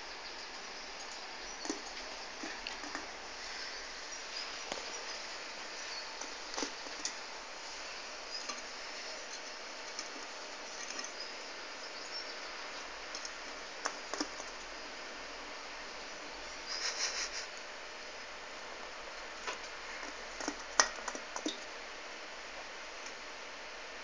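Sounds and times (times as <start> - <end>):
rabbit licking and drinking: 0.0 - 14.8, 19.2 - 21.8
steady hiss: 0.0 - 24.0.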